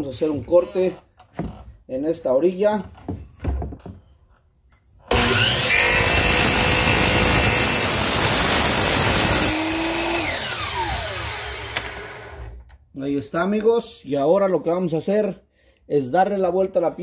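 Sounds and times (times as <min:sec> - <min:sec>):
miter saw motor whining: 0:05.1 - 0:12.5
saw blade cutting wood: 0:05.1 - 0:12.5.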